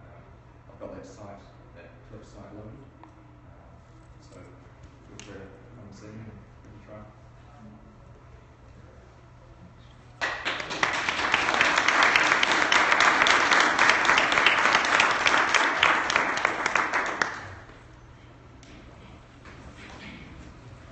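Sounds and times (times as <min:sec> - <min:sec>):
audience applauding: 0:10.2 - 0:17.9.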